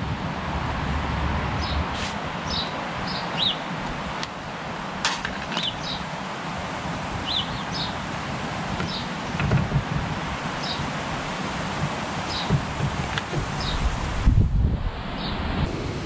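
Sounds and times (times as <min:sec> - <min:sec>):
gusty wind: 0:00.0 - 0:16.0
small bird chirping: 0:07.2 - 0:08.0.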